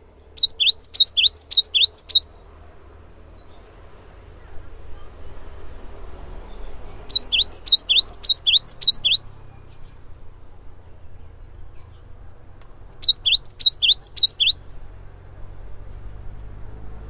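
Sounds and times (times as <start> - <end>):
bird singing rapid high notes: 0.3 - 2.3, 7.0 - 9.2, 12.9 - 14.6.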